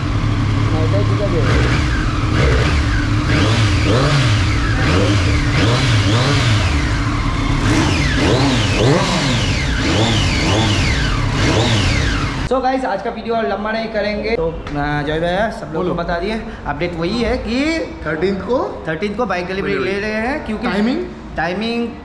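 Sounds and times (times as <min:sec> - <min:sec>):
motorcycle engine revving: 0:00.0 - 0:12.5.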